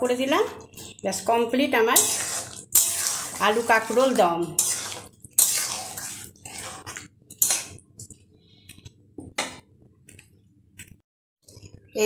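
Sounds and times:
metal spatula scraping a wok: 1.8s - 7.8s.

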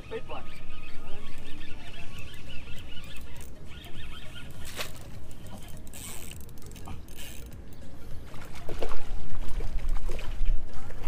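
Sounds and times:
fishing reel clicking: 0.5s - 7.8s.

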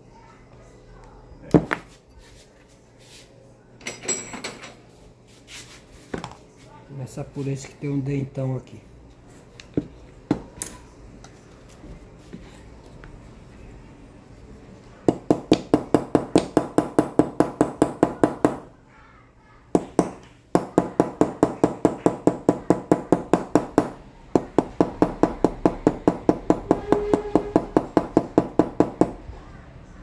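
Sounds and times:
hammer tapping on metal: 15.1s - 18.7s, 19.8s - 29.2s.

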